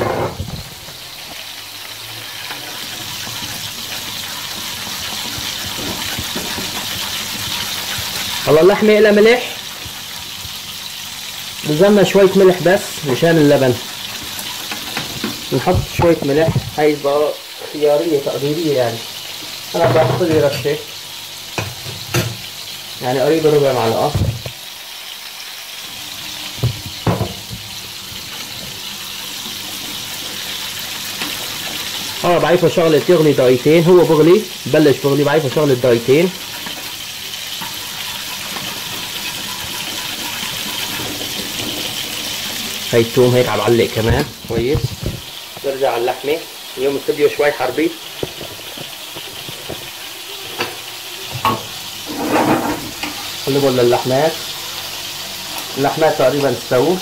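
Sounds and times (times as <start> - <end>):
meat sizzling in a pan: 0.0 - 57.0
whisk swishing liquid in a pot: 37.6 - 42.9.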